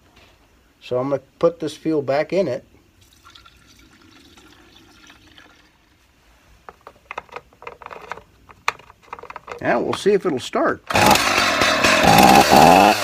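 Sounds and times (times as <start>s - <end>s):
fuel trickling into tank: 3.0s - 6.0s
fuel cap clicks and knocks: 6.7s - 10.0s.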